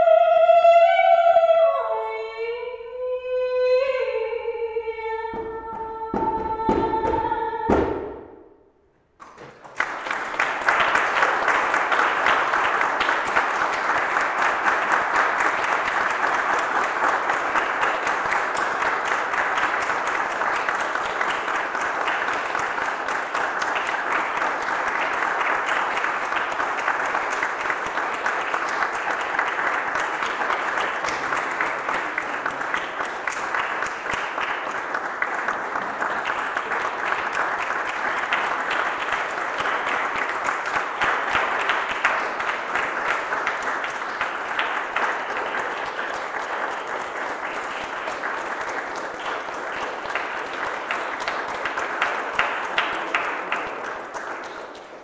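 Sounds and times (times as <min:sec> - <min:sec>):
woman singing: 0:00.0 - 0:07.9
audience applause: 0:09.2 - 0:55.0.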